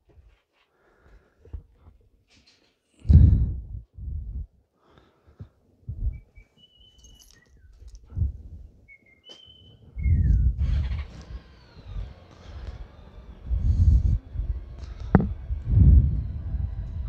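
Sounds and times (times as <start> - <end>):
low microphone rumbles: 3.0 - 4.6, 5.9 - 6.3, 8.0 - 8.8, 9.9 - 11.1, 13.4 - 17.0
bird whistling: 6.1 - 7.7, 8.9 - 11.1.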